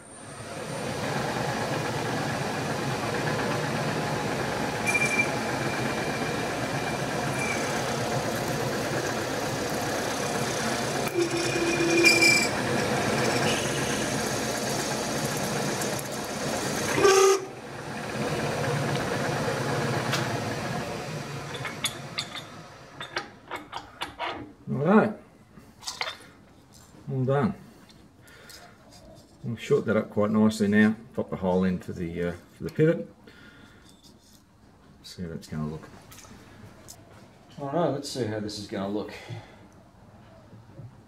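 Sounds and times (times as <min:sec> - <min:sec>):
milling machine drone: 0:00.2 - 0:23.0
high squeals from cutting: 0:04.8 - 0:06.2, 0:07.3 - 0:07.9, 0:11.1 - 0:12.6, 0:13.2 - 0:14.3.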